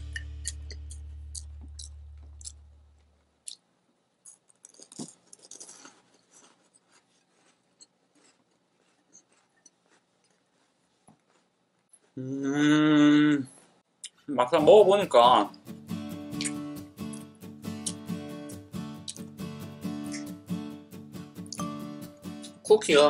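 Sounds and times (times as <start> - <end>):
quiet chewing: 0.4 - 12.2
sustained musical chord: 14.6 - 23.0.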